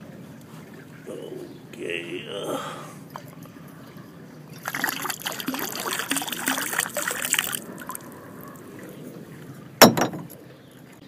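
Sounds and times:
water gurgling out of bottle: 4.6s - 8.2s.

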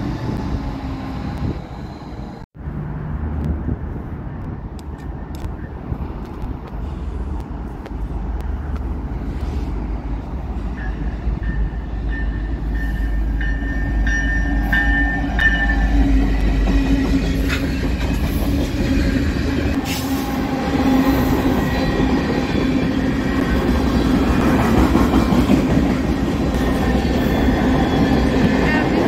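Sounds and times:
train wheels rushing on rail: 6.0s - 29.0s.

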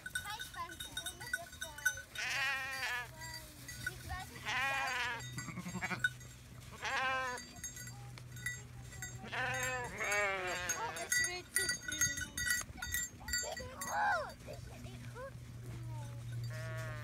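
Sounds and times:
sheep bleating: 2.2s - 3.2s, 4.2s - 6.1s, 6.7s - 7.5s, 9.2s - 11.3s, 16.5s - 17.0s.

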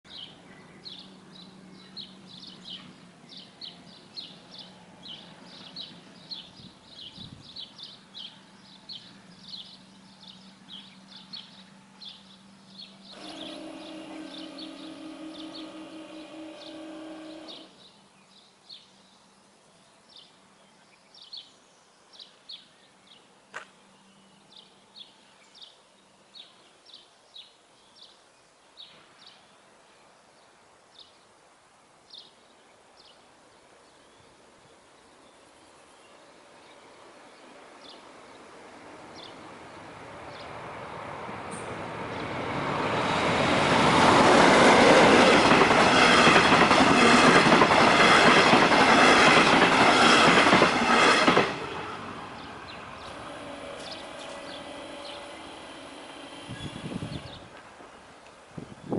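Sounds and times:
birds chirping: 0.1s - 19.3s, 35.0s - 58.9s.

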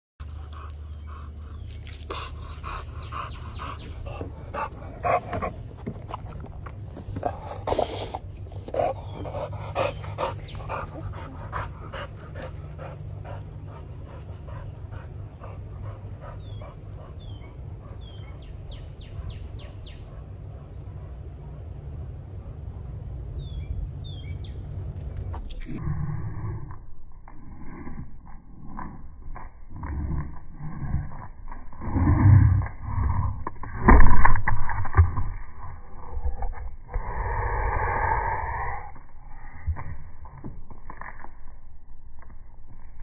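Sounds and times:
dog panting: 0.2s - 21.3s
steady low hum: 0.2s - 43.0s.

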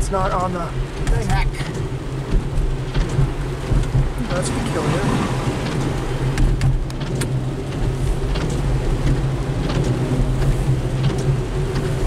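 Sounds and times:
car engine and tyres droning: 0.0s - 12.0s
raindrops tapping on windshield: 0.0s - 12.0s.

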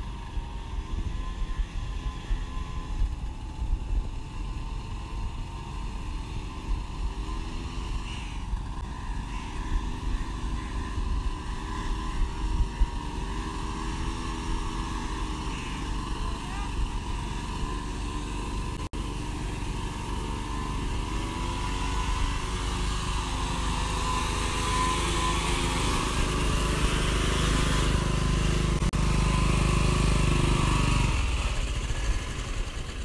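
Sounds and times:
small tractor engine running: 0.0s - 33.0s.

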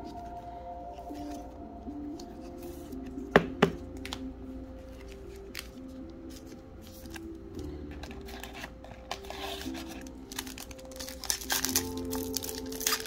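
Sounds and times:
quiet background music: 0.0s - 13.0s
card packaging ticks and rustles: 4.9s - 13.0s.

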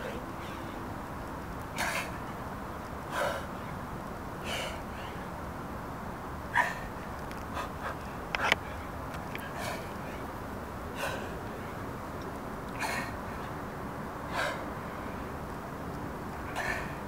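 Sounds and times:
man breathing out hard: 11.0s - 11.4s, 14.3s - 14.7s, 16.6s - 17.0s.

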